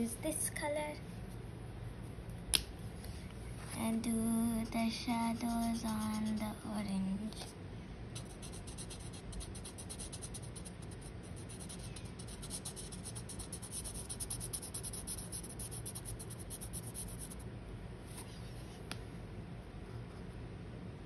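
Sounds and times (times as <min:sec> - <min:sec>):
marker scratching on paper: 0:08.2 - 0:17.4.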